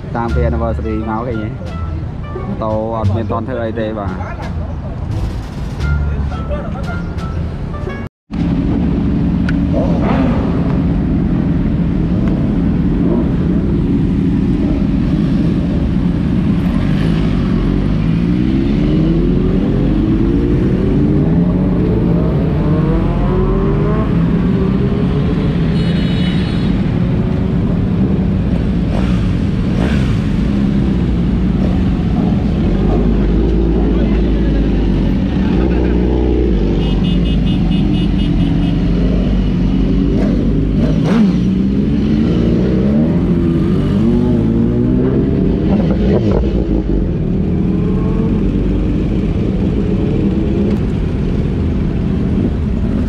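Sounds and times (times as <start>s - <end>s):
motorcycle engines rumbling: 0.0s - 53.0s
motorcycle accelerating: 8.3s - 25.8s, 26.8s - 53.0s.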